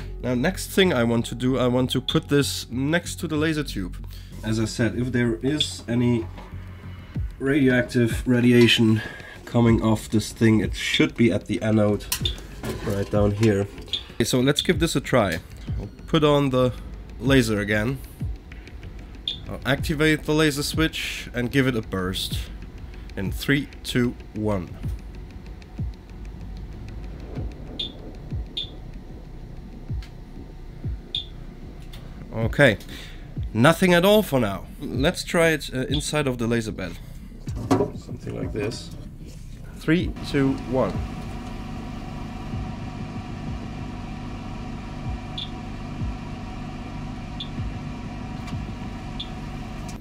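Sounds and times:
low hum: 0:03.8 - 0:35.1, 0:35.8 - 0:50.0
geiger counter clicks: 0:13.8 - 0:30.2, 0:31.1 - 0:31.4
faint high blips: 0:30.9 - 0:31.4
laser cutter humming: 0:40.1 - 0:50.0.

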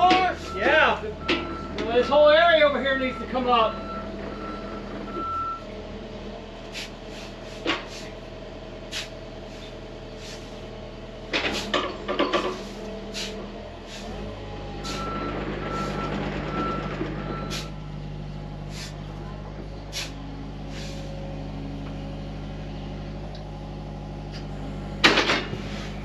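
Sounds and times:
diesel engine running: 0:00.0 - 0:26.0
backup alarm beeping: 0:02.8 - 0:05.7, 0:14.8 - 0:17.9.

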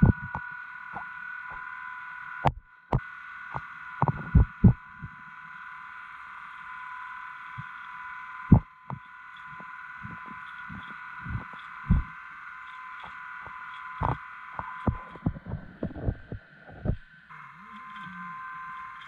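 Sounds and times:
high whining tones: 0:00.0 - 0:19.0
steady underwater hiss: 0:00.0 - 0:19.0
deep muffled thumps: 0:14.9 - 0:17.0.

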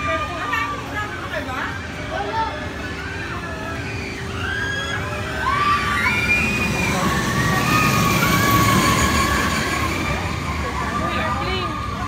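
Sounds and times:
distant crowd voices: 0:00.0 - 0:12.0
high drawn-out cries: 0:02.9 - 0:12.0.

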